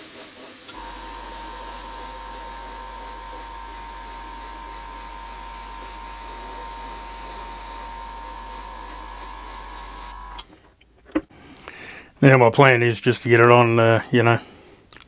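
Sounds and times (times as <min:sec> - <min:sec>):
airbrush air hiss: 0:00.0 - 0:10.2
steady whine: 0:00.7 - 0:10.4.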